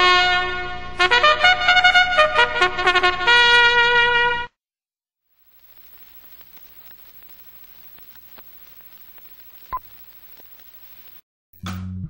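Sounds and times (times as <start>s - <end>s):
faint static hiss: 5.3s - 11.2s
soft crackling clicks: 5.4s - 11.2s.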